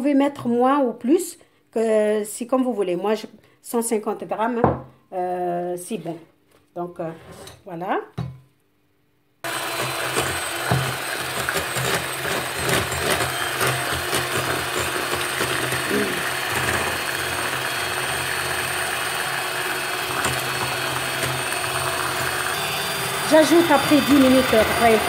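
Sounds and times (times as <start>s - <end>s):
electric hand mixer running: 9.5s - 25.0s.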